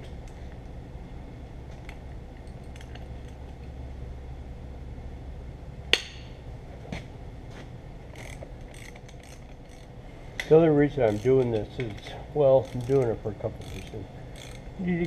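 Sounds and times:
steady low hum: 0.0 - 15.0
wrench clicking on metal: 8.2 - 14.8.

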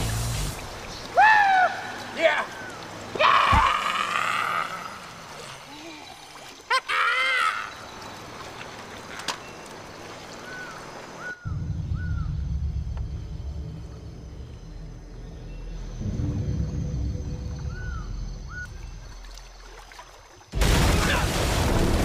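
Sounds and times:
bird calls: 4.6 - 12.5, 17.4 - 20.1
low rumbling score drone: 11.4 - 19.4.

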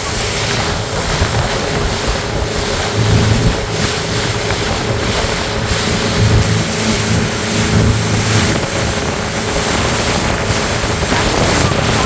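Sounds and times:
faint engine hum: 0.0 - 12.0
water rushing and splashing: 0.0 - 12.0
wind buffeting microphone: 0.0 - 12.0.

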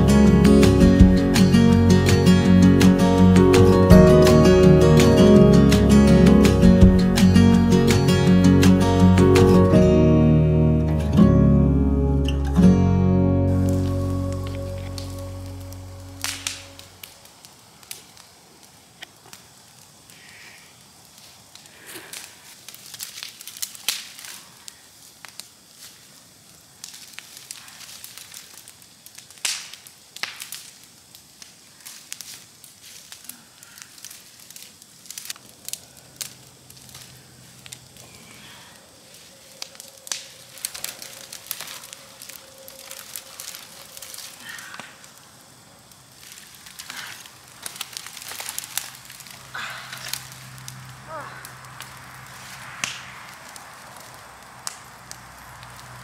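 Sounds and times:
acoustic guitar music: 0.0 - 17.0
fire crackling and popping: 0.0 - 56.0.

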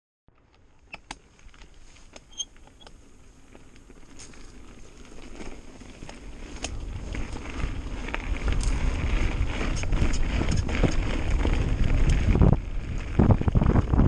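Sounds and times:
bike clicks and rattles: 0.3 - 14.0
bike tyres rolling on dirt: 0.3 - 14.0.

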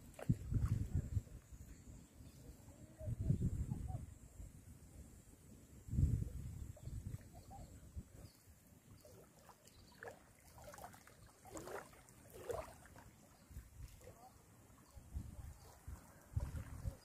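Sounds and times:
low wind rumble on microphone: 0.0 - 1.7, 3.0 - 4.2, 5.8 - 8.3, 15.0 - 17.0
river waves lapping against bank: 8.8 - 17.0.

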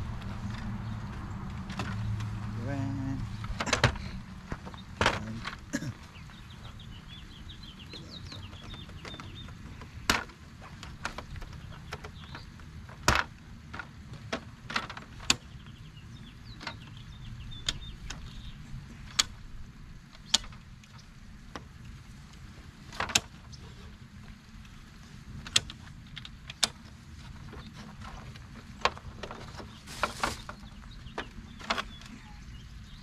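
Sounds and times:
birds chirping faintly: 0.0 - 33.0
folding table clicks and knocks: 3.5 - 5.6, 8.3 - 15.5, 22.9 - 23.4.

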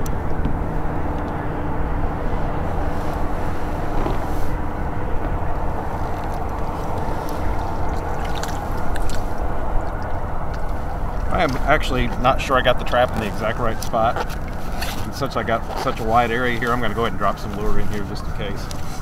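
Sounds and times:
low rumble: 0.0 - 15.7
water splashes: 5.4 - 19.0.

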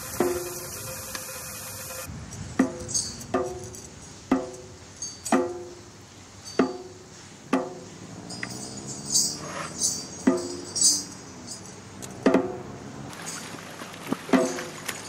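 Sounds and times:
resonant drum strikes: 0.0 - 1.2, 1.9 - 8.0, 10.2 - 11.0, 12.2 - 12.7
metallic jingling: 0.0 - 13.7.

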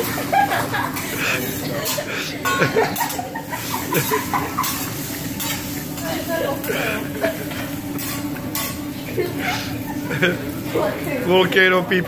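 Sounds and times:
food sizzling on a griddle: 0.0 - 12.0
metal spatula scraping steel: 1.0 - 8.8.

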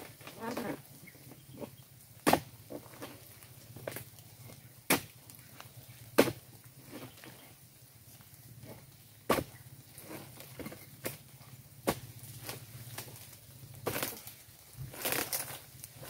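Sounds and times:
chisel chopping palm tree: 2.2 - 2.5, 4.9 - 5.2, 6.2 - 6.4, 9.3 - 9.6, 11.8 - 13.1, 13.8 - 14.2, 14.9 - 15.6.

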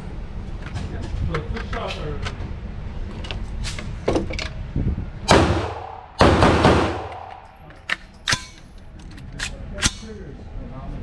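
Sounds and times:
gunshots echoing indoors: 5.3 - 7.6.

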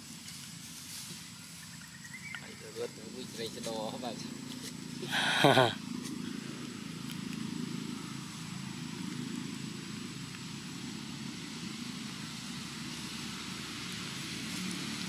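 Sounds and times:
faint hiss: 0.0 - 7.4.

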